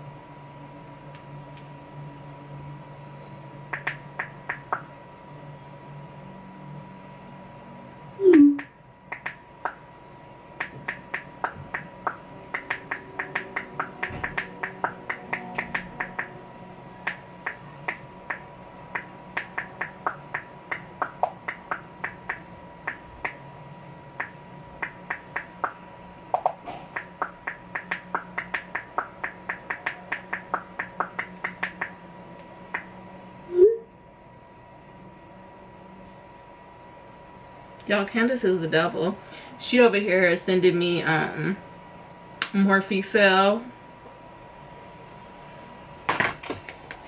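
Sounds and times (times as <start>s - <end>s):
fingernails tapping on touchscreen: 3.7s - 4.9s, 10.6s - 16.3s, 19.0s - 23.4s.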